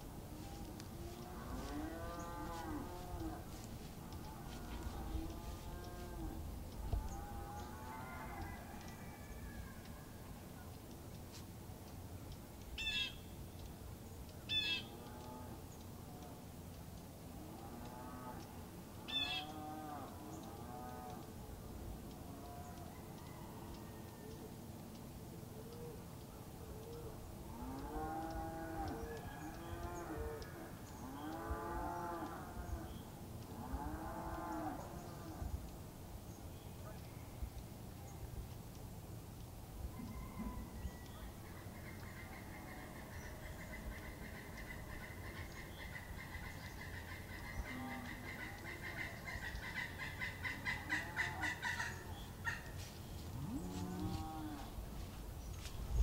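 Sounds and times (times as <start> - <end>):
cows mooing: 0.4 - 8.6, 17.4 - 18.4, 19.4 - 21.2, 27.5 - 32.9, 33.6 - 35.5, 53.4 - 54.8
cattle mooing: 0.5 - 3.6, 53.4 - 54.7.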